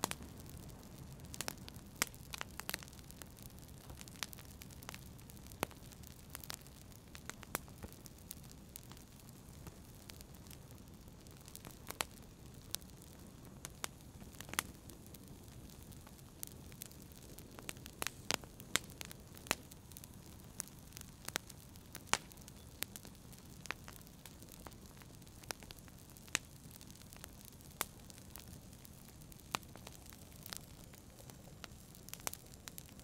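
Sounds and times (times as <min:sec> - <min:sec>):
low steady background noise: 0:00.0 - 0:33.0
wood fire crackling: 0:00.0 - 0:33.0.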